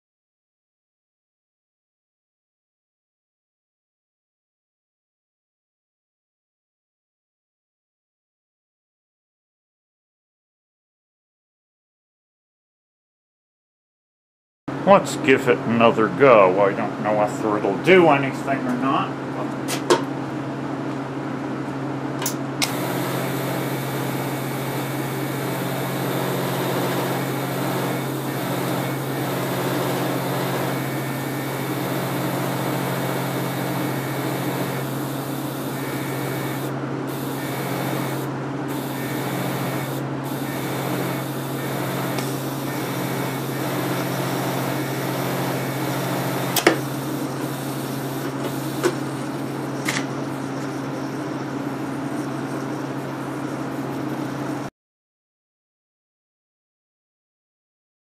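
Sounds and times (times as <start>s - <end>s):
arc welder humming: 22.2s - 50.4s.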